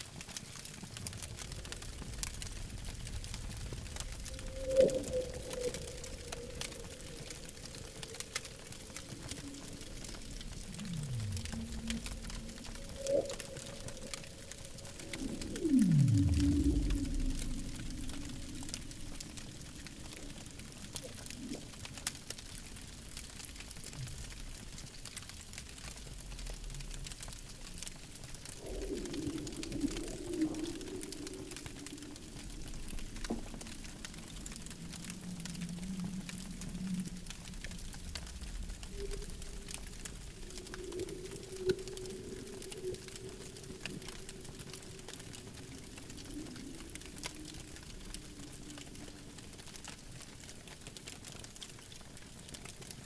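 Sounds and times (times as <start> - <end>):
campfire crackling and popping: 0.0 - 53.0
low steady rumble: 1.9 - 20.9.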